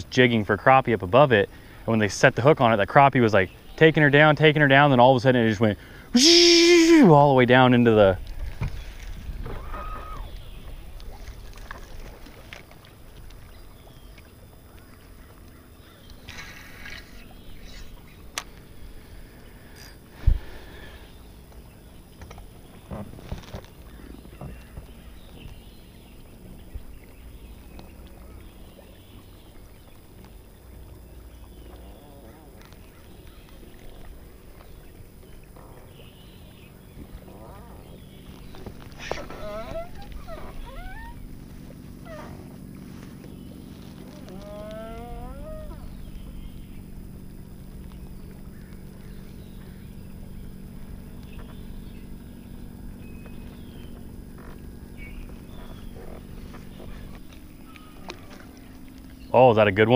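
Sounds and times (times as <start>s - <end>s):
steady low hum: 0.0s - 59.9s
waterfowl calling: 5.8s - 7.2s, 8.8s - 21.8s, 23.8s - 29.8s, 30.4s - 59.4s
wind on microphone: 8.2s - 11.5s
faint ticks: 42.2s - 49.7s.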